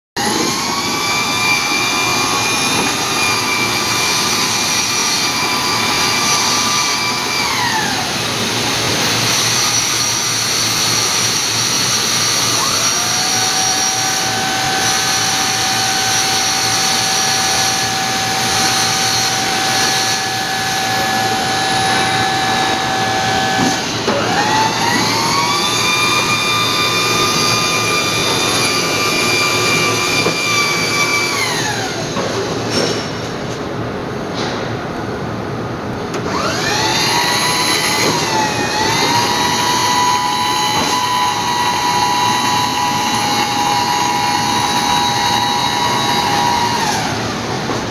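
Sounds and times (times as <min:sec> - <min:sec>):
electric motor whine: 0:00.2 - 0:32.1, 0:36.2 - 0:47.6.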